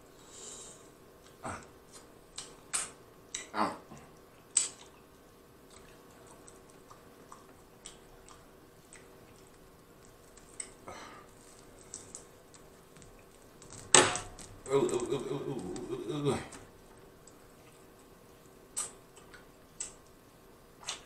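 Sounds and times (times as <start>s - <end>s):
chewing with wet mouth smacks: 4.5s - 10.8s.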